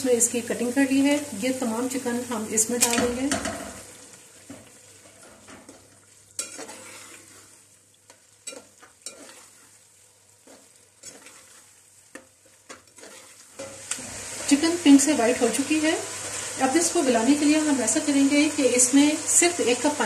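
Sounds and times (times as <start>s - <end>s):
food sizzling in a pot: 0.0s - 20.0s
metal spoon scraping a pot: 6.4s - 7.5s, 8.4s - 9.7s, 10.4s - 11.7s, 12.7s - 13.8s.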